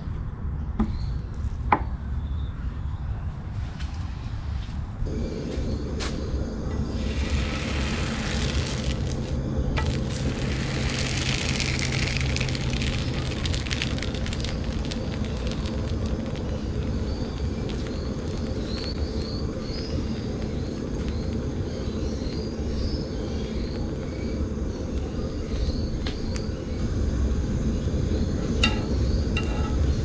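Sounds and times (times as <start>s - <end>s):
gas burner rushing: 5.1s - 14.6s
dough sizzling and crackling: 6.0s - 30.0s.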